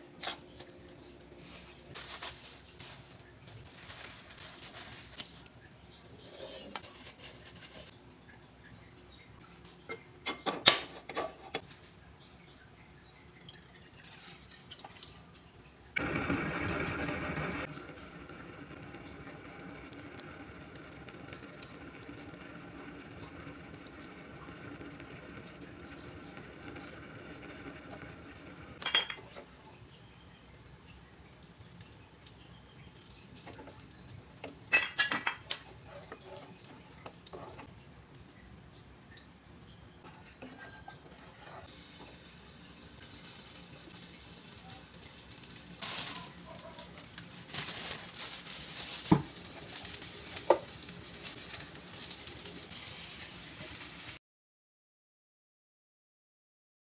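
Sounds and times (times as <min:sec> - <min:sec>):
ladle scraping a wok: 0:06.2 - 0:07.9
kitchen knocks and clatter: 0:09.9 - 0:11.7, 0:34.4 - 0:37.7, 0:49.0 - 0:49.6
water drips and splashes: 0:13.4 - 0:16.0, 0:29.4 - 0:39.8, 0:41.6 - 0:53.4
water pouring into wok: 0:16.0 - 0:29.0, 0:41.6 - 0:54.2.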